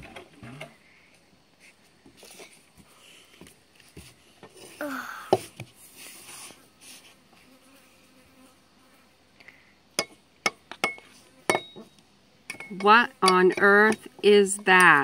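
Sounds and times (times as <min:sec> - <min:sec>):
fly buzzing: 0:06.0 - 0:09.7.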